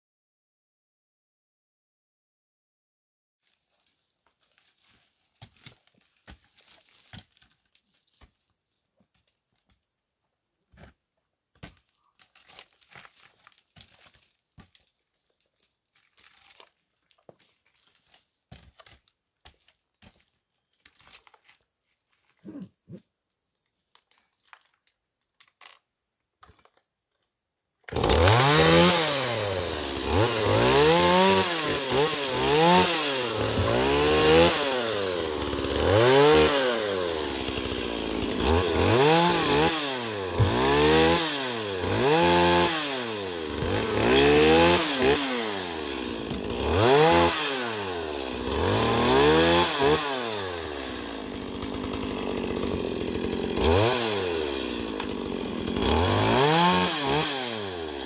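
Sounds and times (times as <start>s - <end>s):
chainsaw revving: 22.4s - 23.0s, 27.9s - 58.0s
climbing gear knocking on tree trunk: 33.4s - 34.3s, 40.3s - 41.2s.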